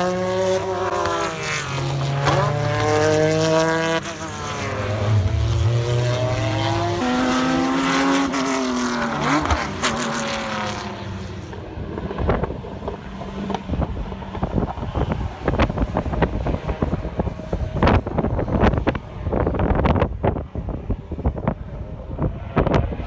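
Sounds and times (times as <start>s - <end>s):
race car engines revving: 0.0s - 23.0s
wind buffeting microphone: 4.8s - 23.0s.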